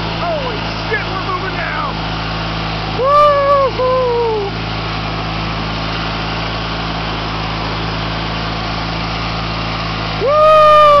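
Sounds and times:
riding lawn tractor engine running: 0:00.0 - 0:11.0
loud drawn-out cry: 0:03.0 - 0:04.5, 0:10.2 - 0:11.0.

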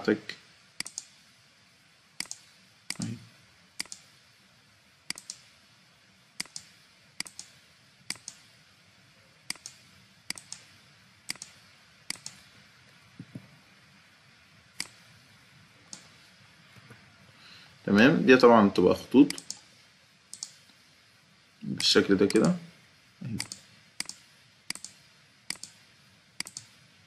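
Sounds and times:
computer mouse button clicking: 0:00.8 - 0:01.1, 0:02.2 - 0:03.1, 0:03.8 - 0:04.0, 0:05.1 - 0:05.4, 0:08.1 - 0:08.4, 0:09.5 - 0:10.7, 0:11.3 - 0:12.4, 0:19.3 - 0:19.6, 0:20.3 - 0:20.6, 0:23.4 - 0:25.8, 0:26.4 - 0:26.7.

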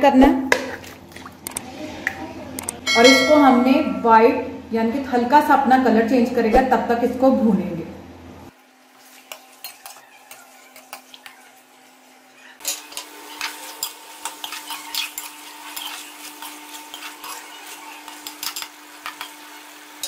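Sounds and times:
chicken frying in oil: 0:08.6 - 0:20.0
metal spoon scraping pan: 0:12.7 - 0:19.4.

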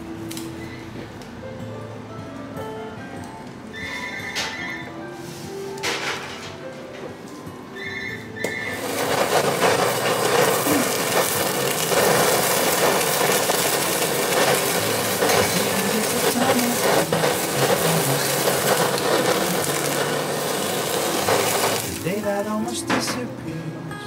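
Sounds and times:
blowtorch flame: 0:08.4 - 0:22.4.

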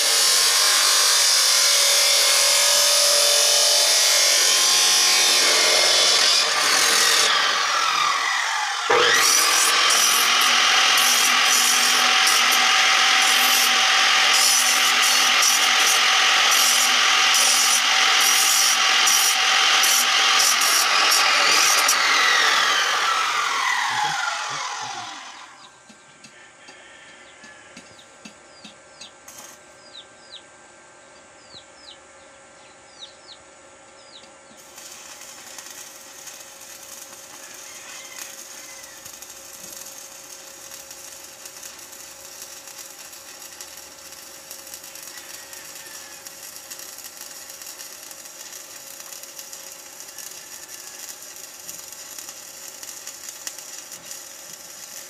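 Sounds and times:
cut-off saw motor winding down: 0:00.0 - 0:25.7
welding arc crackling hiss: 0:00.0 - 0:26.4, 0:27.5 - 0:29.6, 0:34.6 - 0:55.0.

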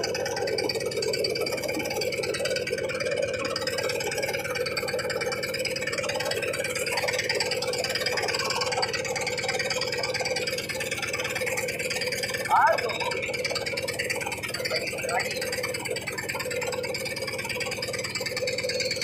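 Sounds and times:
boat engine idling: 0:00.0 - 0:19.0.

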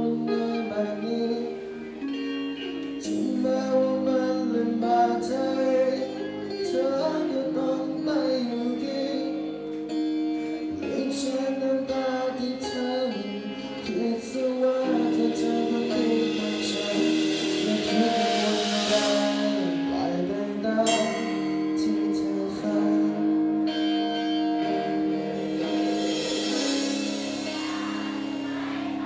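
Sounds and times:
drums: 0:00.0 - 0:29.0
electric guitar: 0:00.0 - 0:29.0
person singing pop-rock song: 0:00.0 - 0:29.0.

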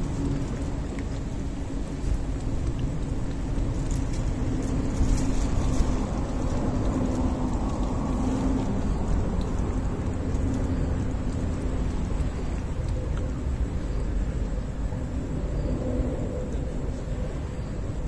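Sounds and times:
steady low rumble: 0:00.0 - 0:18.0
cat lapping water: 0:06.0 - 0:14.4.

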